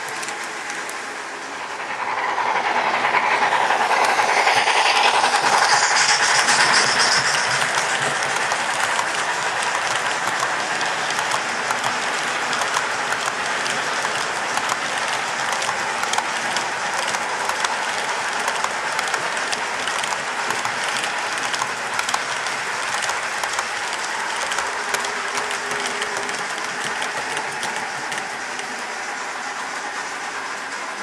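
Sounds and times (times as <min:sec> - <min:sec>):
model train wheels rattling on rails: 0:00.0 - 0:31.0.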